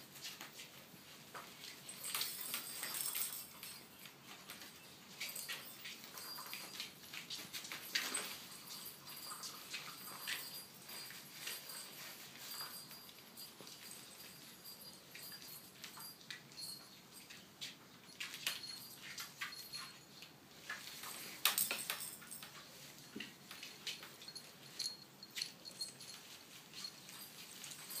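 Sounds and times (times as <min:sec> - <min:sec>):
claws clicking on tile floor: 0:18.1 - 0:28.0.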